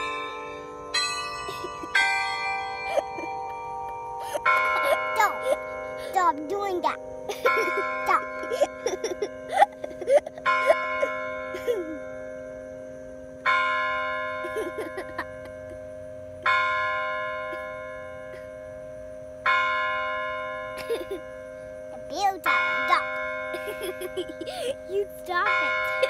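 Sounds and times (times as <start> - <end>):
tower bell tolling: 0.0 - 26.0.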